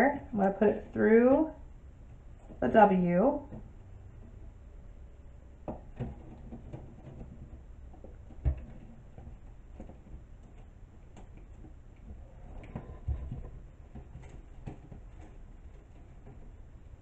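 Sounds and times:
wire clicking and rattling: 5.6 - 17.0.

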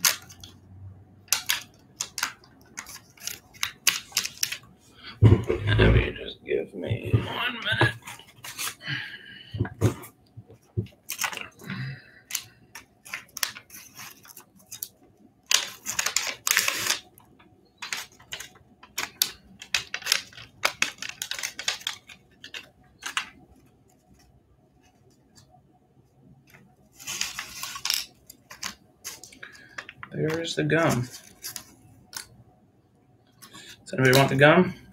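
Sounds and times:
waxed paper wrapper crinkling: 1.3 - 4.6, 10.9 - 11.6, 12.2 - 14.9, 15.5 - 17.1, 17.7 - 25.4, 26.5 - 32.3.

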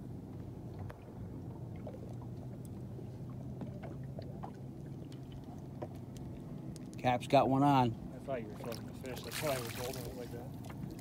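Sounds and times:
boat motor hum: 0.0 - 11.0
faint clicks and ticks: 5.1 - 7.0.

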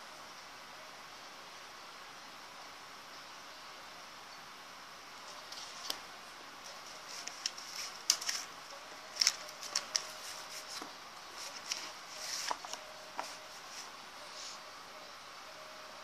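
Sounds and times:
magazine paper rustling: 5.4 - 6.0, 6.7 - 14.6.

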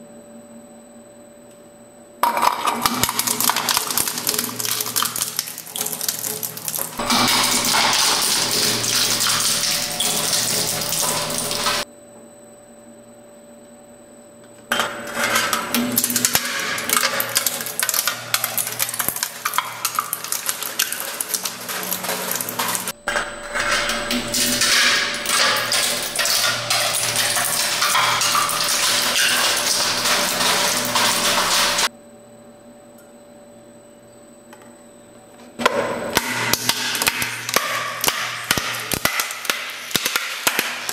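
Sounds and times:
steel bowl rattling against cutters: 2.2 - 11.8, 14.7 - 31.9.

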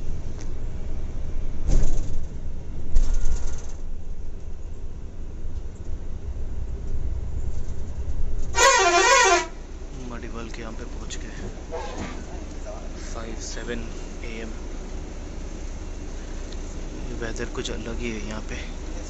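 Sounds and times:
coach engine and road rumble: 0.0 - 19.0
vehicle bumps: 1.6 - 4.1, 11.4 - 12.4
wavering vehicle horn blast: 8.5 - 9.7, 11.7 - 12.2.

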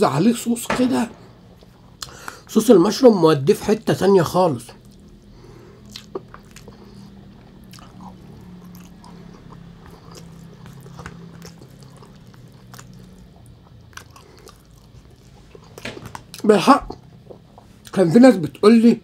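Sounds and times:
low steady hum: 0.0 - 19.0
person chewing rice: 4.8 - 17.9.

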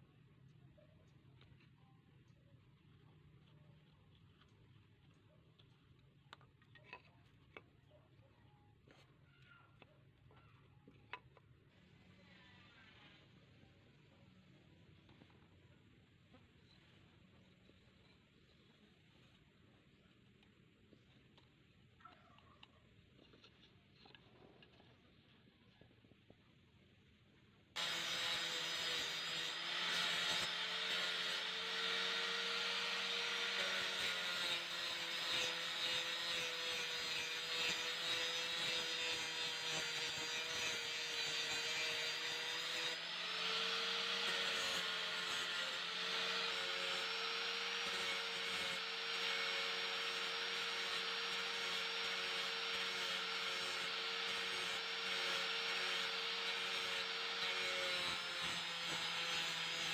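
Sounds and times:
angle grinder grinding wood: 27.8 - 59.9.

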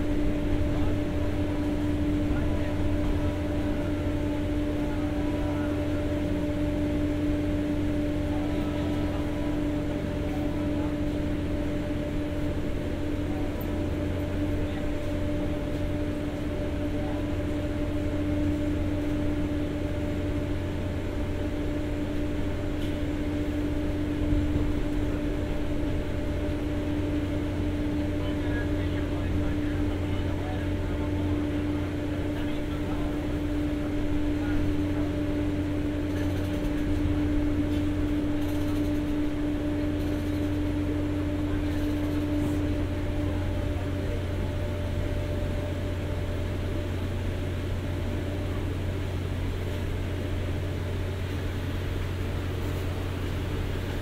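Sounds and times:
diesel generator humming: 0.0 - 54.0.

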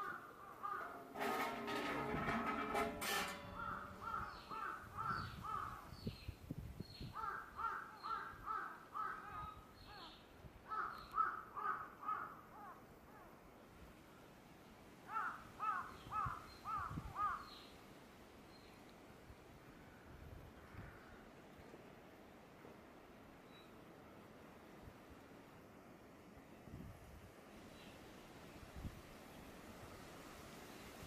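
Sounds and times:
crow cawing: 7.2 - 9.5, 10.7 - 12.8, 15.1 - 17.4.

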